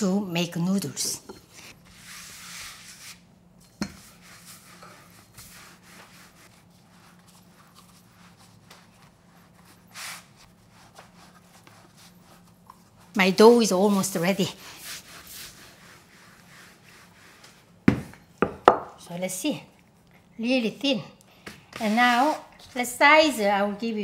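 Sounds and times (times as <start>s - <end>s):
rolling pin rubbing on dough: 1.6s - 17.8s, 21.8s - 22.6s.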